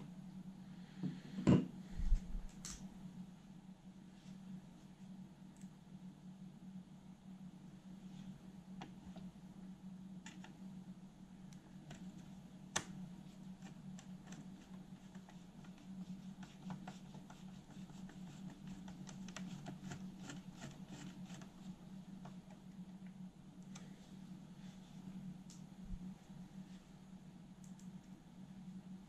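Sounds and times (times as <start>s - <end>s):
steady low hum: 0.0s - 29.0s
small plastic clicks and scratches: 10.2s - 10.6s.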